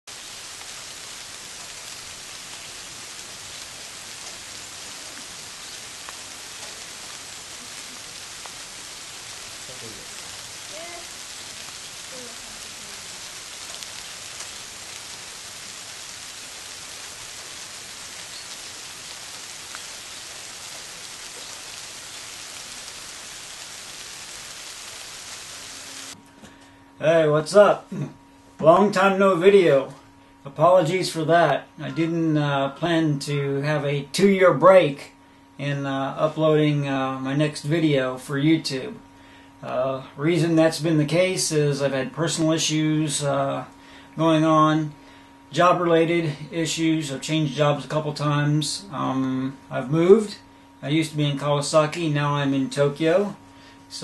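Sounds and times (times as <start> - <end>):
rain falling on pond and foliage: 0.0 - 26.2.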